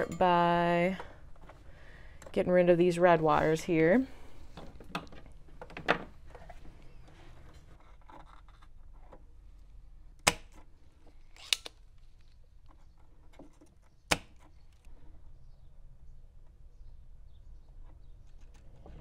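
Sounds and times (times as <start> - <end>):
wire cutters snipping wires: 11.3 - 11.8.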